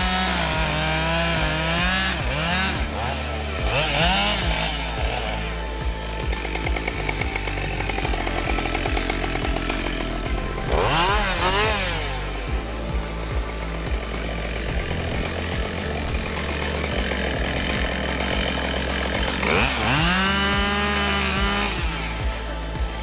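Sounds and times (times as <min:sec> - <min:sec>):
chainsaw cutting log: 0:00.0 - 0:23.0.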